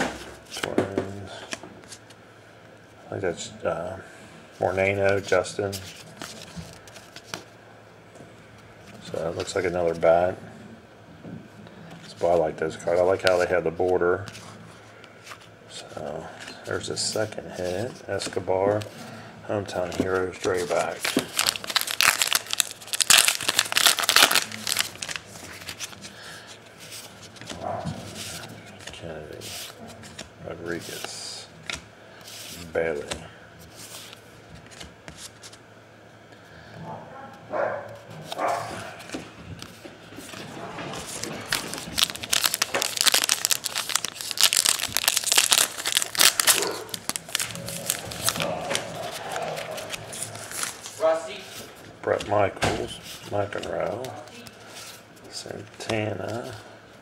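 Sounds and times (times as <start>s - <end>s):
cards rustling: 19.7s - 35.6s, 38.2s - 56.6s
foil wrapper crinkling: 20.1s - 26.5s, 41.0s - 51.4s.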